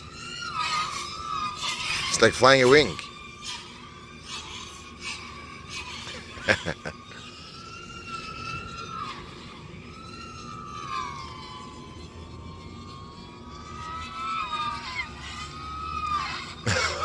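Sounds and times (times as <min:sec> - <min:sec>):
distant drone motors whining: 0:00.0 - 0:17.0.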